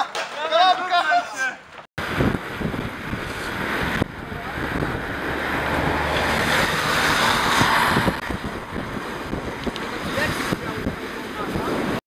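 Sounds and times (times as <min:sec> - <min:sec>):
traffic hiss on wet road: 0:02.0 - 0:12.0
wind noise on microphone: 0:02.0 - 0:12.0.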